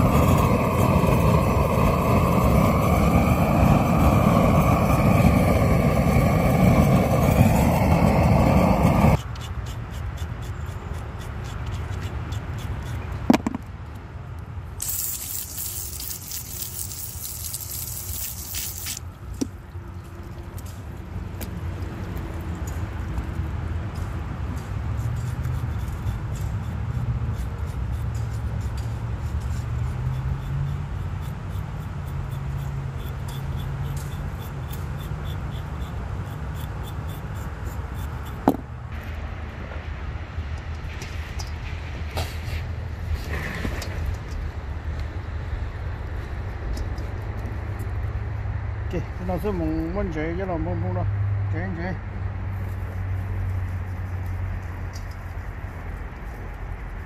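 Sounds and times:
knife scraping wet hide: 14.8 - 19.0
water spraying: 14.8 - 19.3.

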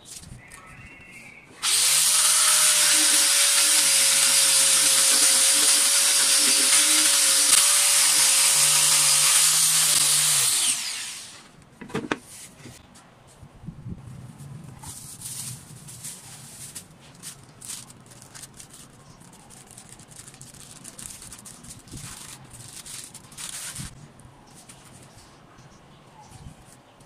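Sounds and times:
electric sander running: 1.6 - 11.4.

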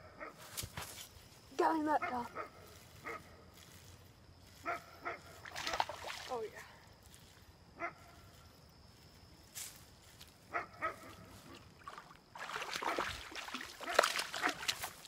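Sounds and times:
fish splashing at the surface: 5.4 - 6.5, 11.8 - 15.0.

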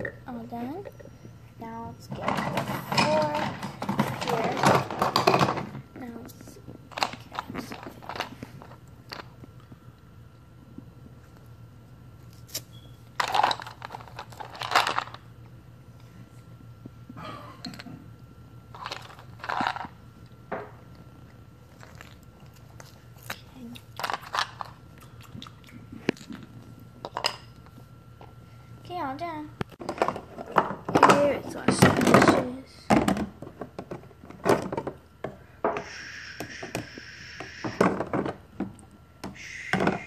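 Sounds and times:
plastic dishes clattering: 2.1 - 5.8, 29.8 - 35.4, 37.6 - 38.8.

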